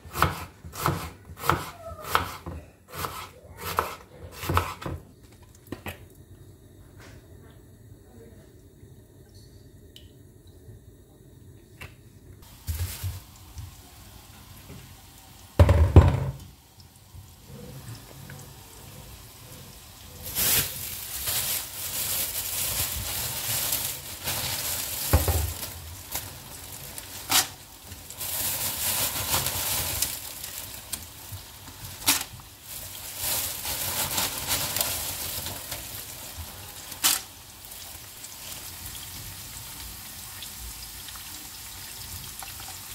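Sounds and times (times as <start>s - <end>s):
food sizzling in oil: 12.4s - 42.9s.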